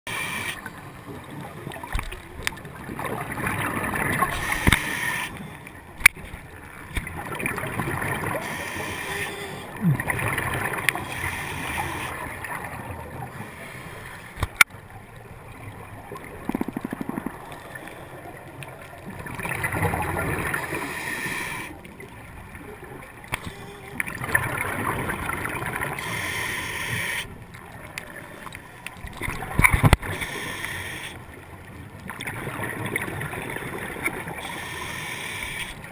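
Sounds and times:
diver inhaling through regulator: 0:00.1 - 0:00.7, 0:04.3 - 0:05.5, 0:08.3 - 0:10.1, 0:10.9 - 0:12.3, 0:20.7 - 0:21.8, 0:25.9 - 0:27.4, 0:30.1 - 0:31.2, 0:34.4 - 0:35.8
exhaled bubbles gurgling underwater: 0:00.2 - 0:13.8, 0:14.5 - 0:35.9
sharp clicks: 0:16.4 - 0:17.5.

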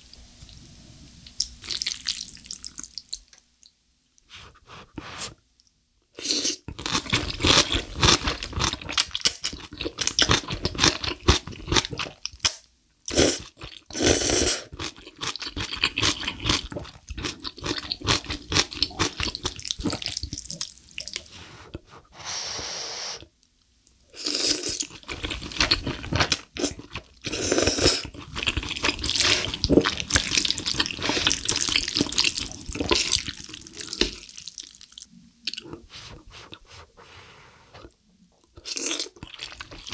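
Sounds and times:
slurping noodles: 0:13.1 - 0:23.2, 0:24.2 - 0:34.2
wet smacking chewing: 0:28.0 - 0:35.8.

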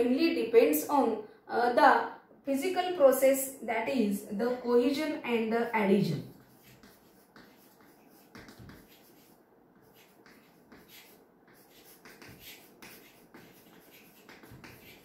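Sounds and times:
chalk tapping and scratching on board: 0:06.3 - 0:15.0.

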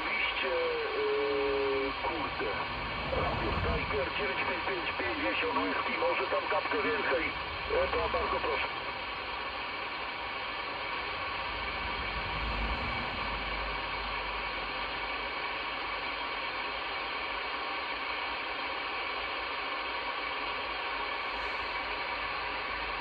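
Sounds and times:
radio static hiss: 0:00.0 - 0:23.0
low rumble: 0:01.4 - 0:15.6.

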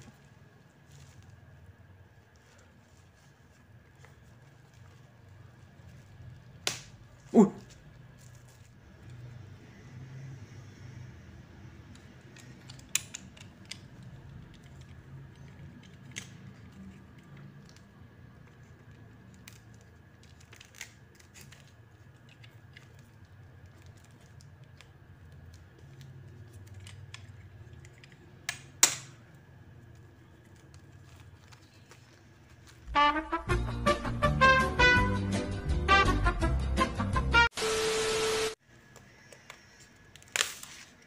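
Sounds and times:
plastic clicks and crinkles: 0:11.8 - 0:32.9
knife scratching plastic wrap: 0:18.6 - 0:24.7.

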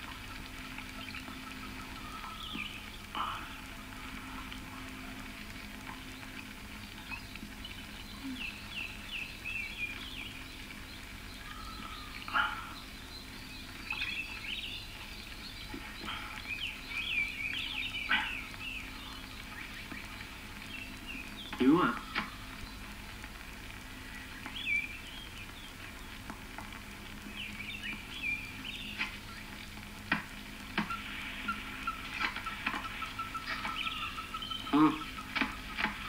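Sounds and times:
bird chirps and calls: 0:06.9 - 0:22.9, 0:30.8 - 0:36.0.

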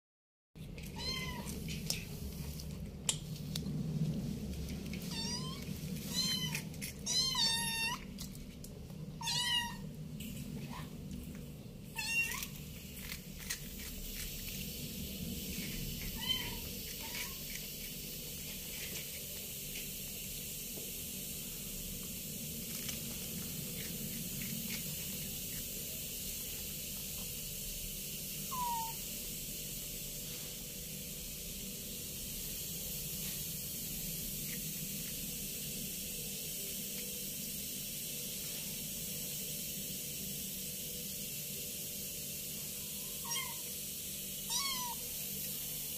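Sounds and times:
low hum: 0:00.7 - 0:18.7
steady hiss: 0:01.0 - 0:45.9
kitten mewing: 0:05.1 - 0:08.0, 0:09.2 - 0:09.8, 0:12.0 - 0:12.5, 0:28.5 - 0:29.0, 0:43.2 - 0:43.7, 0:44.5 - 0:45.0
kitten crunching crackers: 0:11.4 - 0:19.5, 0:22.6 - 0:25.7.

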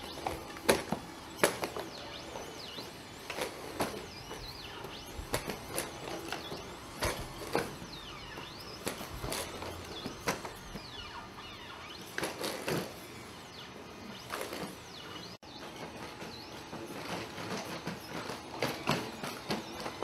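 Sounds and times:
robot feet thudding on floor: 0:00.0 - 0:02.4, 0:03.2 - 0:11.1
hydraulic actuators whining: 0:00.0 - 0:20.0.

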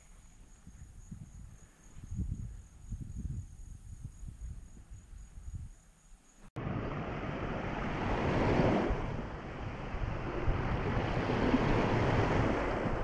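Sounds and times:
wind rumbling on microphone: 0:00.0 - 0:06.0, 0:06.6 - 0:13.0
small waves breaking on sand: 0:06.6 - 0:13.0.

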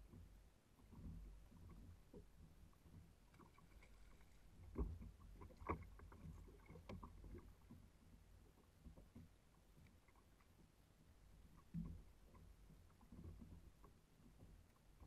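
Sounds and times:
wind and water rumble: 0:00.0 - 0:15.0.

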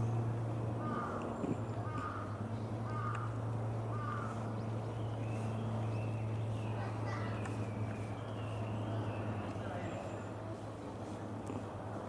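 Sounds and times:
crow cawing: 0:00.8 - 0:01.2, 0:01.8 - 0:04.4.

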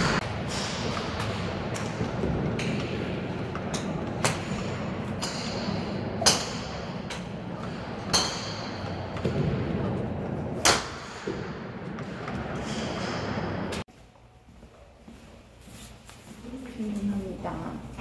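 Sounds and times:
golf clubs striking balls: 0:00.0 - 0:13.9
steady background noise: 0:00.0 - 0:18.0.

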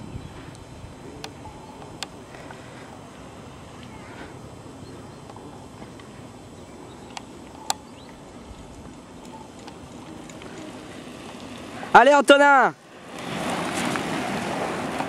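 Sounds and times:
bike tyres rumbling and rattling: 0:00.0 - 0:12.0, 0:12.9 - 0:15.0.

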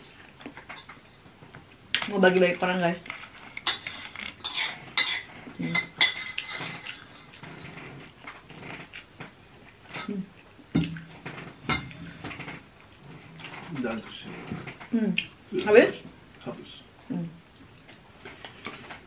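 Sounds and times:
cutlery clinking on a plate: 0:03.6 - 0:07.3.

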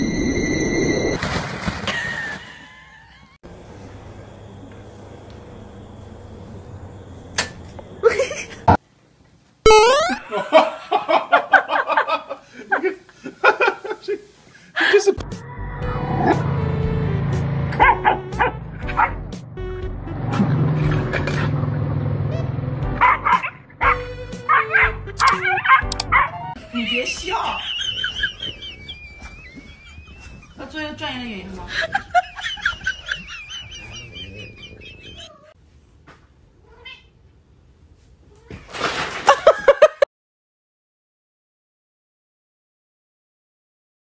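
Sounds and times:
background music: 0:22.7 - 0:27.6
young dog barking and yipping: 0:23.0 - 0:26.4.

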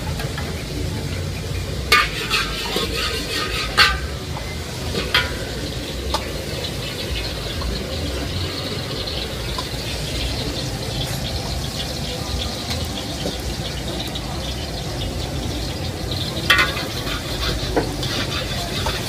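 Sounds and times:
frying hiss: 0:00.0 - 0:19.0
metal spatula scraping a wok: 0:01.3 - 0:07.4, 0:16.1 - 0:19.0.

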